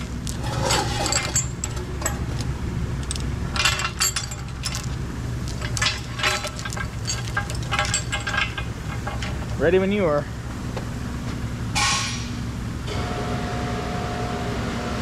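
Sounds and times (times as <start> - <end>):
low shop hum: 0.0 - 15.0
steel chain clinking: 0.2 - 10.0.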